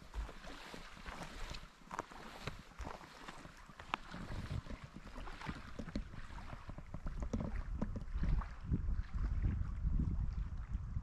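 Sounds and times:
small waves lapping: 0:00.0 - 0:11.0
wind buffeting microphone: 0:04.0 - 0:11.0.

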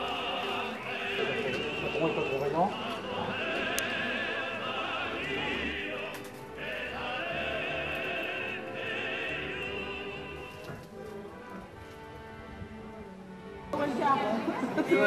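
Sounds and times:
operatic voice singing: 0:00.0 - 0:10.8
musical accompaniment: 0:00.0 - 0:15.0.

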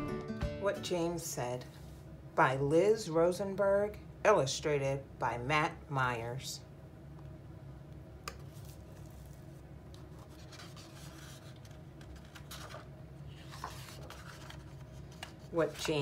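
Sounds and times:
steady low hum: 0:00.8 - 0:16.0
paper pages rustling and turning: 0:08.4 - 0:16.0.

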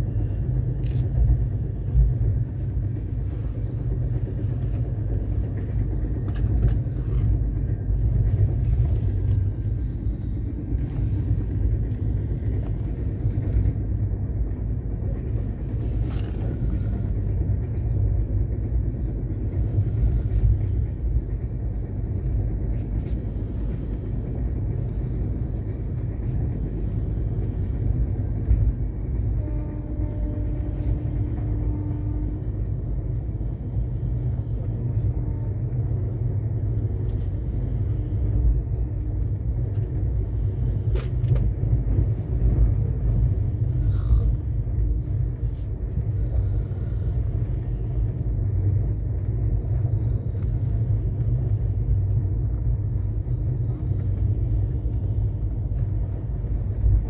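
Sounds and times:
train running on rails: 0:00.0 - 0:57.0.

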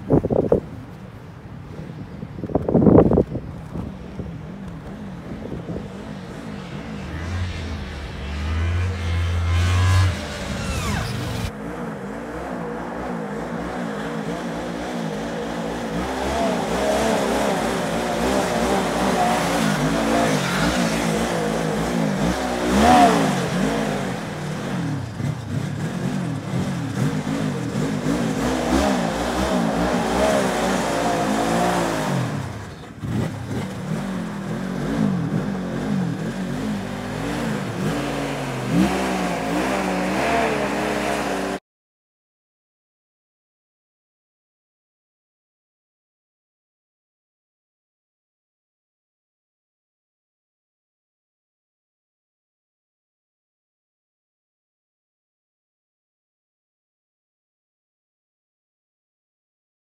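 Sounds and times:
snowmobile engine running: 0:02.6 - 0:41.6.

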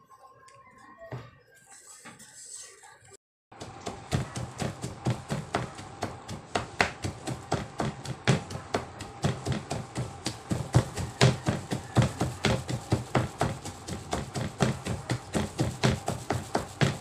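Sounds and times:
knife chopping on cutting board: 0:03.6 - 0:17.0.

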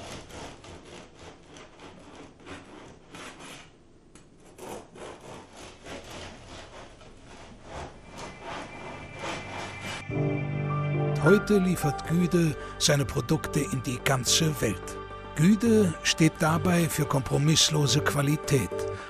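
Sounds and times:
bread knife sawing through crust: 0:00.0 - 0:03.8, 0:04.4 - 0:10.1.

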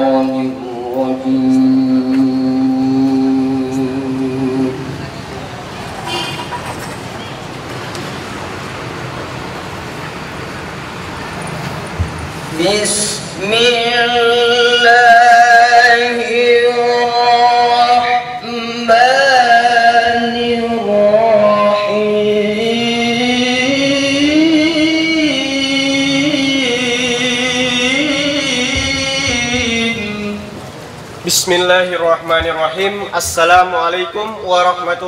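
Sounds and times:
person chanting a slow melody: 0:00.0 - 0:05.2, 0:12.5 - 0:30.6.

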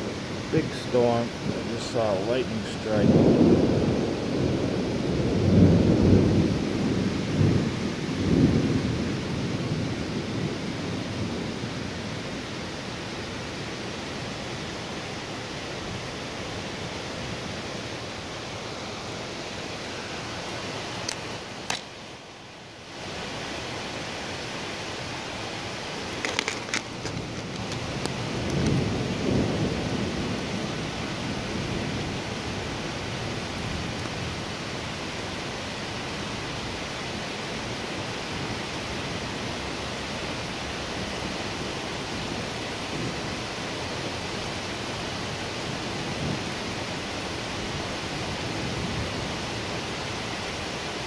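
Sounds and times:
thunder rumbling: 0:00.0 - 0:11.9, 0:26.3 - 0:34.5
steady rain: 0:00.0 - 0:51.0.

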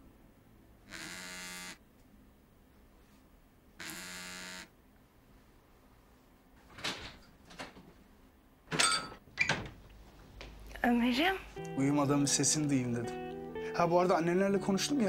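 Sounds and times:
phone vibrating on table: 0:00.9 - 0:01.8, 0:03.8 - 0:04.7.

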